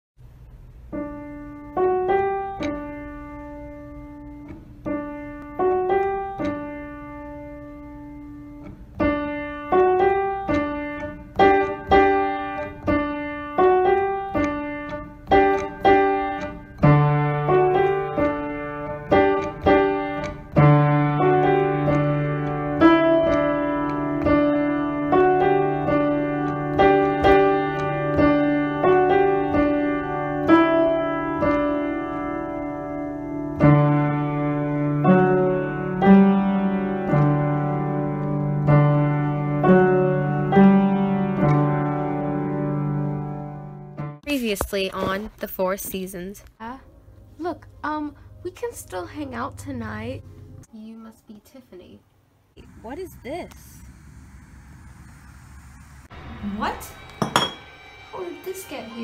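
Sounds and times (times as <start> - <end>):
piano melody: 0.8 - 44.4, 46.6 - 50.7, 56.1 - 59.0
low sustained bass note: 56.1 - 59.0.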